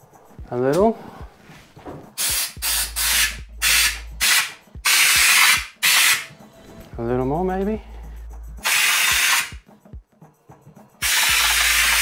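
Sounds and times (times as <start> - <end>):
spray gun hissing bursts: 2.2 - 6.3, 8.6 - 9.5.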